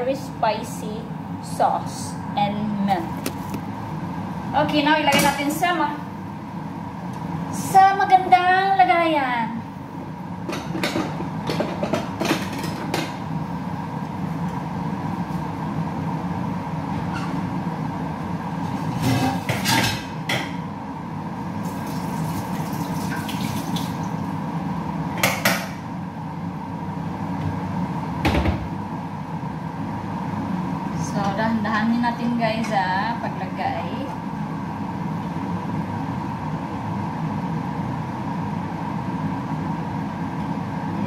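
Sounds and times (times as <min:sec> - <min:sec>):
kitchen hum: 0:00.0 - 0:41.0
dishes clattering: 0:19.0 - 0:20.6.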